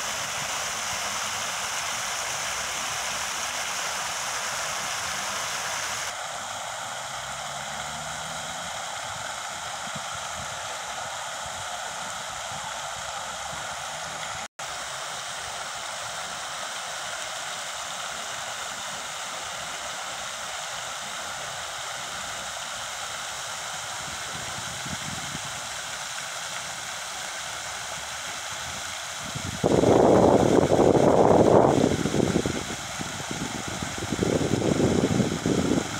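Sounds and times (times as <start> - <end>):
fountain water splashing: 0.0 - 35.9
loud rushing noise: 1.0 - 10.9.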